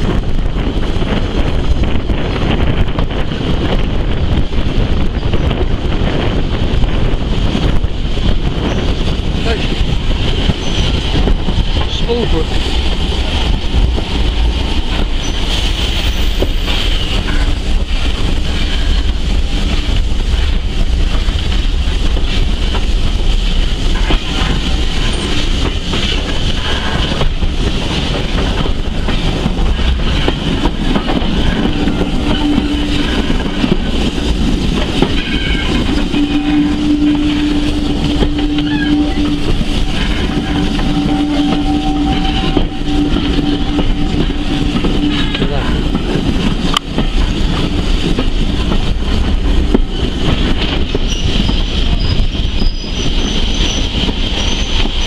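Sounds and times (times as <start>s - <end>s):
faint rail clatter: 0.0s - 55.0s
train carriage rumble: 0.0s - 55.0s
steady drawn-out tone: 29.6s - 46.8s.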